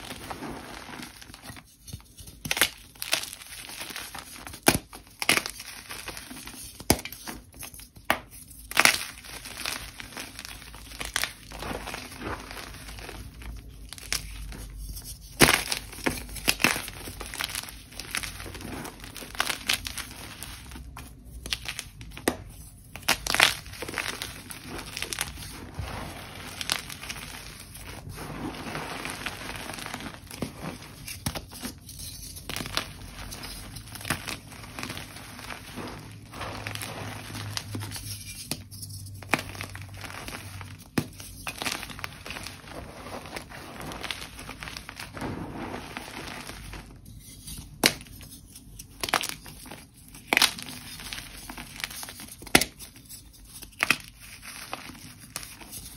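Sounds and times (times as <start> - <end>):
chalk crunching and crumbling: 0.0 - 55.9
chalk pieces snapping: 47.3 - 55.9.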